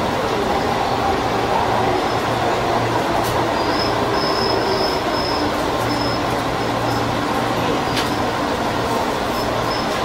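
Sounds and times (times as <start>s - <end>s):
electric train rumbling slowly: 0.0s - 10.0s
high squeal from train wheels: 3.5s - 7.1s, 9.3s - 10.0s.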